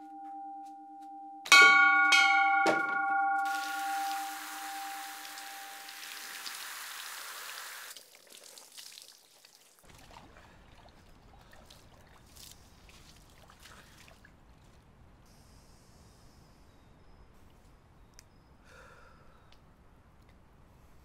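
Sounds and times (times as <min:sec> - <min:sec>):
water dripping and trickling: 0:03.4 - 0:14.8
water pouring and splashing: 0:03.4 - 0:14.8.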